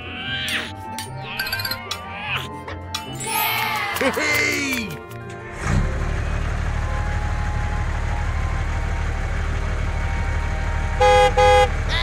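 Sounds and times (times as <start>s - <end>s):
tractor engine idling: 5.3s - 12.0s.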